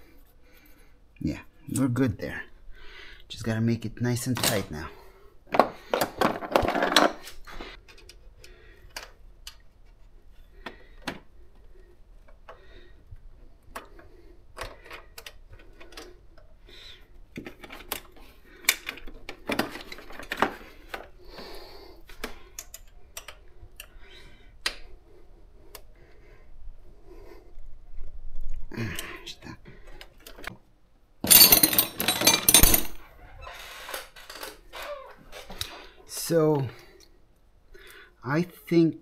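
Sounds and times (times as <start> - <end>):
handling noise: 31.2 - 33.1.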